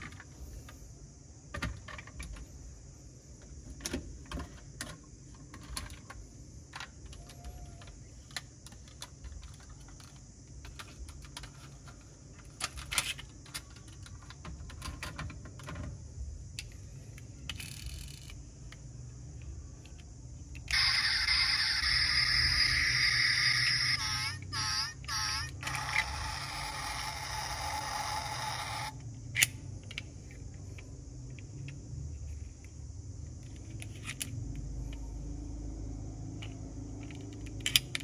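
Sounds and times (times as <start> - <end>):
toy cars clicking and tapping: 4.3 - 15.9, 16.6 - 18.8, 19.8 - 31.8, 36.4 - 38.0.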